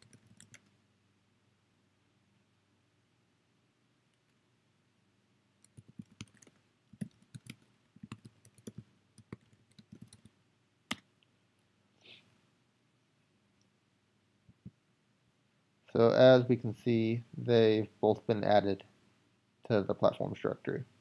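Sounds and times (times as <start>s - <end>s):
faint typing on computer keyboard: 0.0s - 0.8s, 5.6s - 11.2s.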